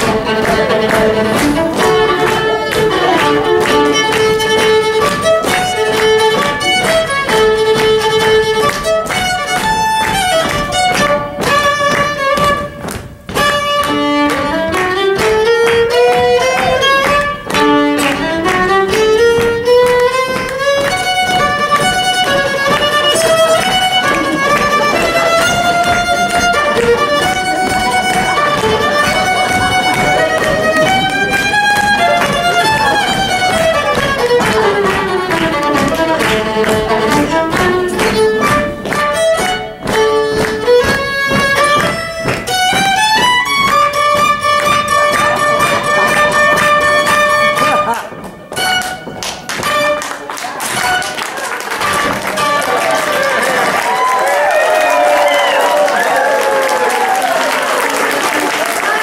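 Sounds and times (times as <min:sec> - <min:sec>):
band backing: 0:00.0 - 0:59.0
fiddle playing a melody: 0:00.0 - 0:59.0.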